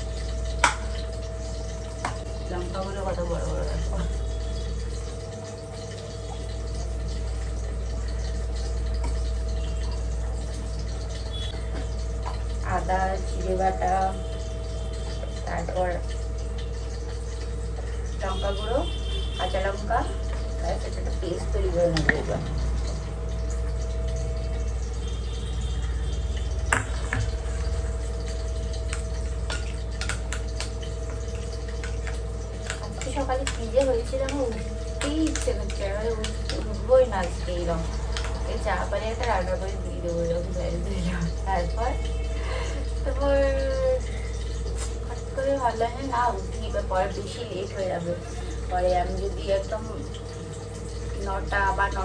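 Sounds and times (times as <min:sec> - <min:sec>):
motor hum: 0:00.0 - 0:52.0
spoon clinking against metal bowl: 0:28.7 - 0:38.4.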